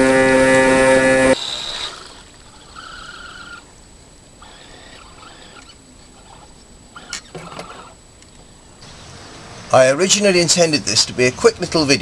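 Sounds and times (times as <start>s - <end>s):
model boat motor whining: 0.0s - 8.0s.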